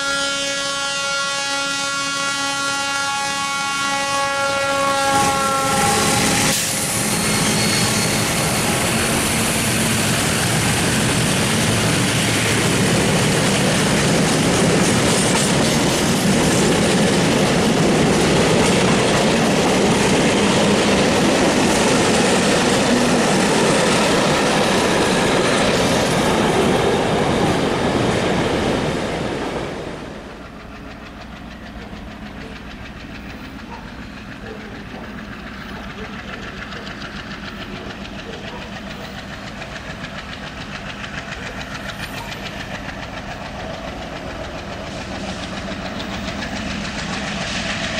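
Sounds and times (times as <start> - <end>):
diesel locomotive horn chord: 0.0 - 7.1
distant train rumble: 0.0 - 47.9
freight train wagons rolling on rails: 2.0 - 47.9.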